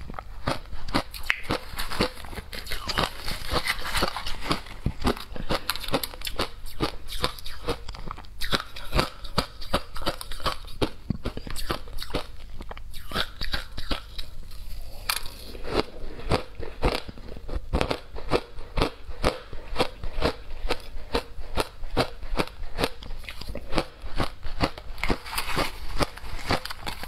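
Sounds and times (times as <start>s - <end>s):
ice crunching in mouth: 17.8s - 27.0s.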